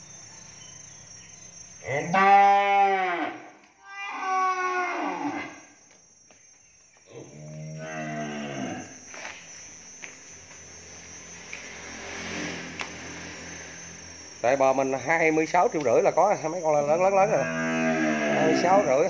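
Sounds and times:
cattle mooing: 17.2 - 18.9.

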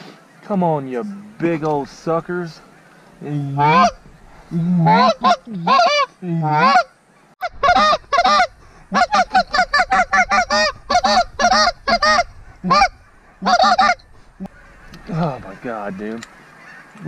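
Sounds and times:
goose call moans and honks: 3.4 - 17.0
goose call clucks: 3.6 - 4.0, 4.8 - 17.0.

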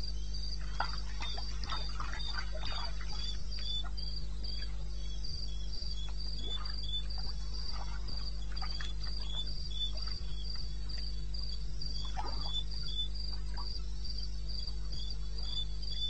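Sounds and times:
crickets chirping: 0.0 - 16.0
steady low hum: 0.0 - 16.0.

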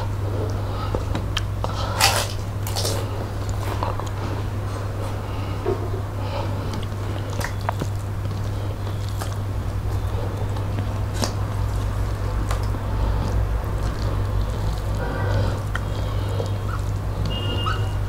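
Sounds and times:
steady low hum: 0.0 - 18.0
wet chewing and lip smacks: 0.4 - 4.3, 6.6 - 17.8
fingers squishing rice: 6.4 - 17.9.

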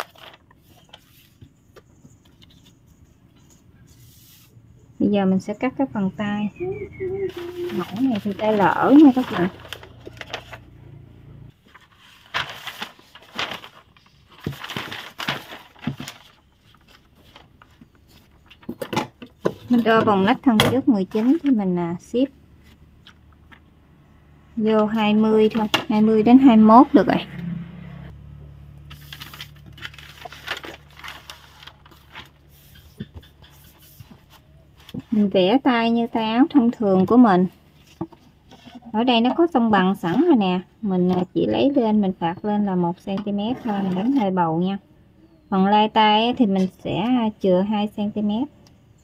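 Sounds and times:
stiff paper crinkling: 0.0 - 1.6, 7.3 - 10.8, 11.6 - 20.0, 28.9 - 35.2.

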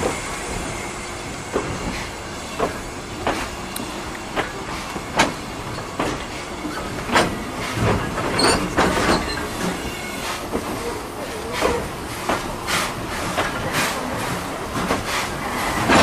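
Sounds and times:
train wheels knocking on rail joints: 1.5 - 16.0
high squeak: 8.4 - 10.0.

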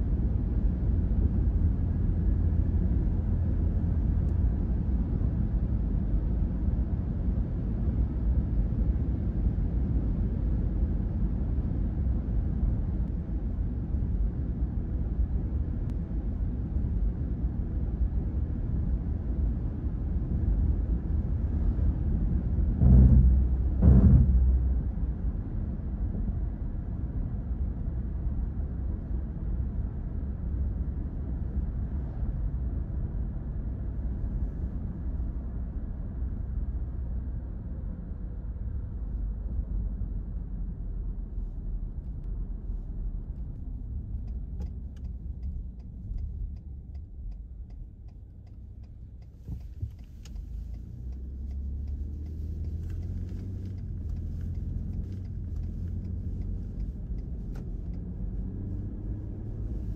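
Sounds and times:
car road noise hum: 0.0 - 59.9
knock: 22.8 - 24.8
regular ticks: 44.2 - 58.1.

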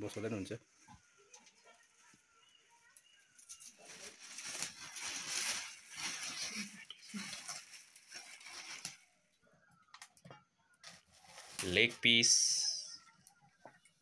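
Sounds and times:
plastic bag crinkling: 3.4 - 9.3, 10.8 - 13.0.

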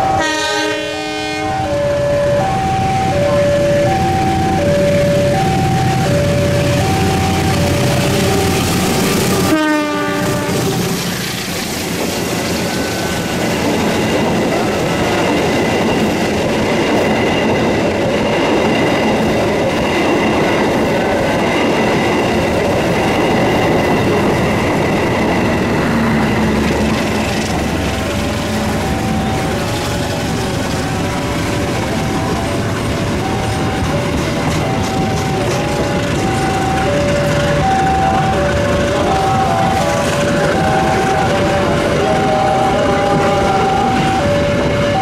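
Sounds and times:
train wheels on rail: 0.0 - 45.0
tone dropping in pitch: 1.4 - 9.6, 25.9 - 45.0.

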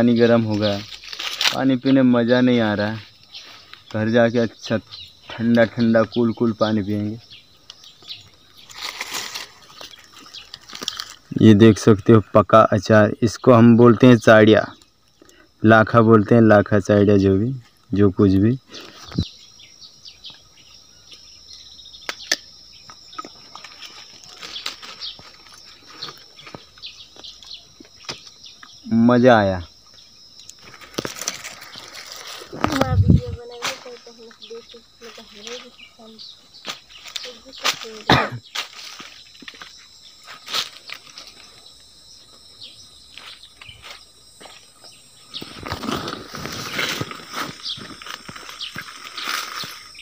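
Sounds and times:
dry leaves crackling: 0.0 - 11.9, 23.2 - 27.4, 30.5 - 42.0, 45.3 - 50.0
bird chirps: 0.0 - 40.4, 41.0 - 50.0
high insect drone: 0.0 - 50.0.

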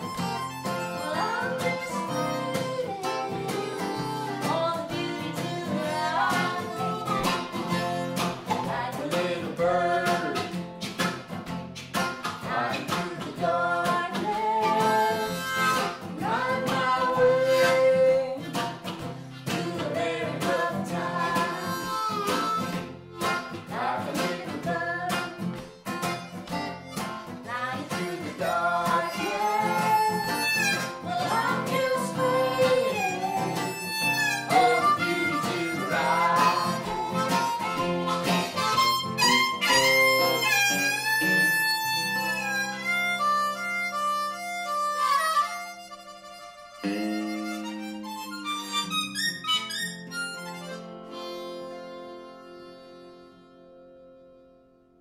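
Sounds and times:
harmonica bending notes: 0.0 - 10.6, 13.4 - 55.0
electric guitar: 0.0 - 45.7, 46.6 - 54.6
strummed acoustic guitar: 0.0 - 54.7.

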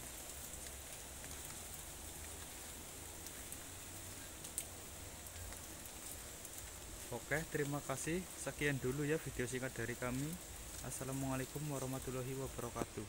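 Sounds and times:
even hiss: 0.0 - 13.0
light ticks: 4.4 - 6.8.

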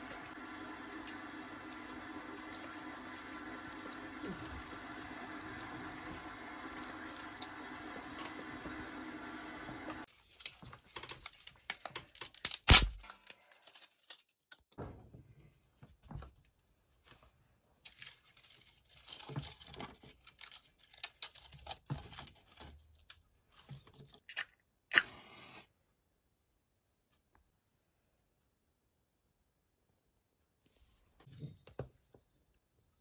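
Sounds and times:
crinkling and tearing handling sounds: 10.1 - 14.7, 17.8 - 24.4.

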